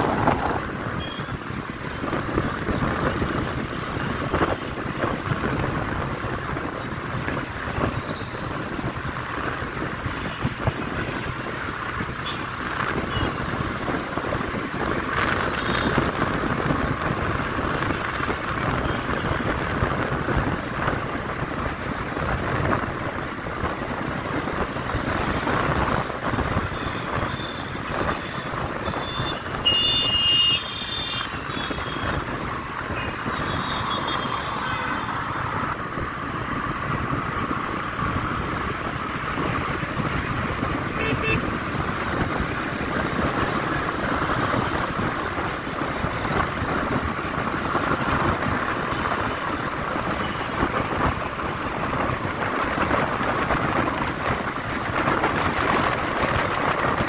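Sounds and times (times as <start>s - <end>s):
wind on microphone: 0.0s - 11.1s, 31.3s - 57.0s
passing vehicles: 0.0s - 57.0s
high horn blast: 41.0s - 41.4s.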